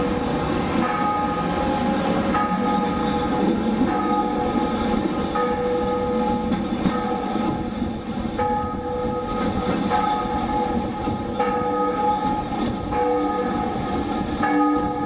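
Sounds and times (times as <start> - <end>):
tram rumbling on rails: 0.0 - 15.0.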